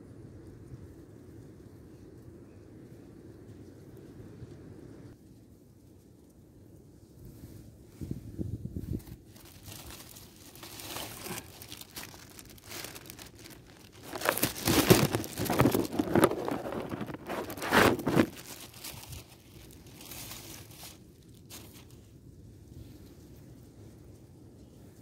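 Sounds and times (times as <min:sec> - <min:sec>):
plastic bag crinkling: 0:09.3 - 0:22.0.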